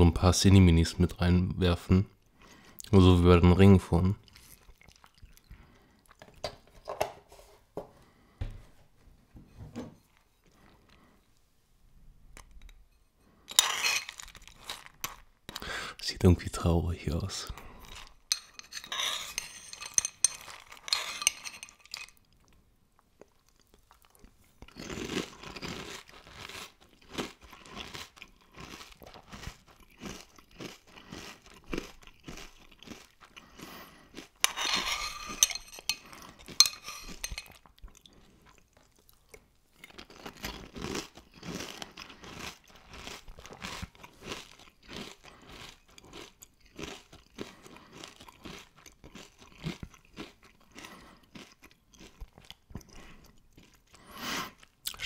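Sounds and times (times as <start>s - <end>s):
crunchy cereal chewing: 4.2s - 6.2s, 13.5s - 15.7s, 17.3s - 55.0s.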